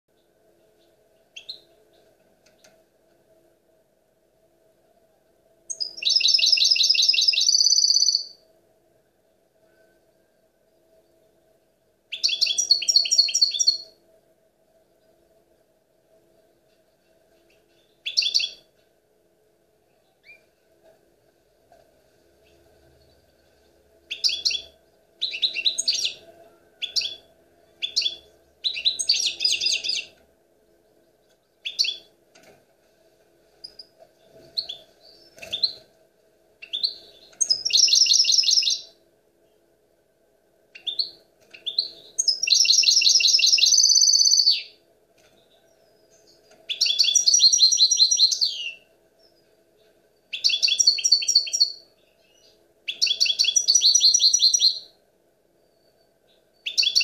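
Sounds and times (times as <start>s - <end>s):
goldfinch song: 0.1s - 2.8s, 5.7s - 8.4s, 12.1s - 14.0s, 16.7s - 18.7s, 22.4s - 32.1s, 33.6s - 35.9s, 36.6s - 39.6s, 40.7s - 55.0s, 55.7s - 57.0s.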